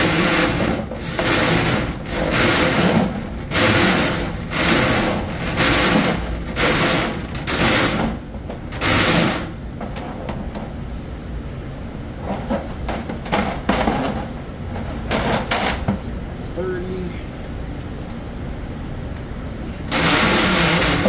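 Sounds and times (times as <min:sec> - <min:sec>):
drain snake motor hum: 0:00.0 - 0:09.6, 0:19.9 - 0:21.0
harsh cable rasp: 0:00.0 - 0:09.6, 0:19.9 - 0:21.0.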